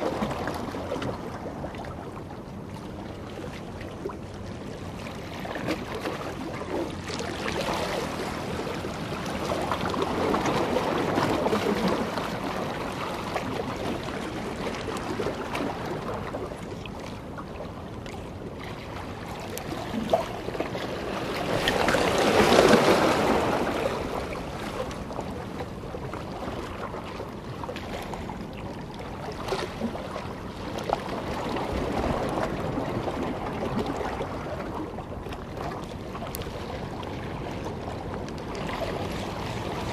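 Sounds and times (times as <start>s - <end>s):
sea water washing against rocks: 19.2s - 25.4s.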